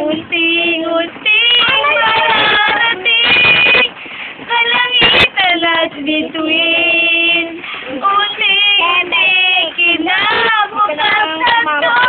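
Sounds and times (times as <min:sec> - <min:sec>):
girls singing: 0:00.0 - 0:12.0.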